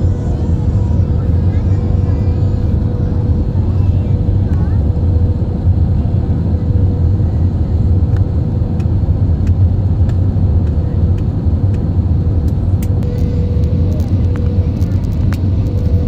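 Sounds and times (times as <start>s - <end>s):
airliner cabin rumble: 0.0s - 16.0s
thin steady hum: 12.2s - 16.0s.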